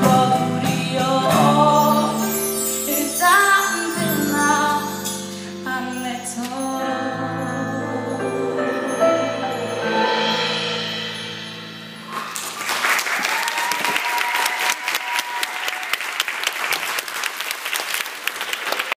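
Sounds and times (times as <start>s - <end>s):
held song chord: 4.9s - 12.4s
audience applause: 12.1s - 19.0s.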